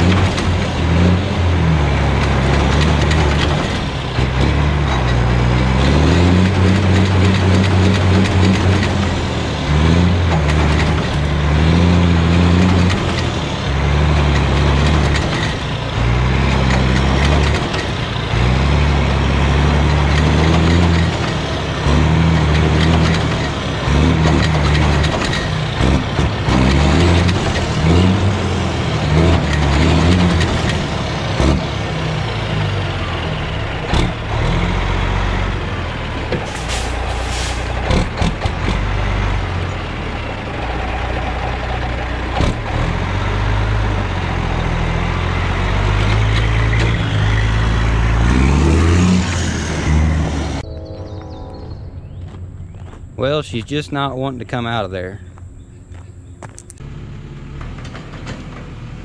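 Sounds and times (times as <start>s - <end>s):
diesel truck engine under load: 0.0s - 51.1s, 51.7s - 59.0s
air hiss: 36.5s - 37.8s.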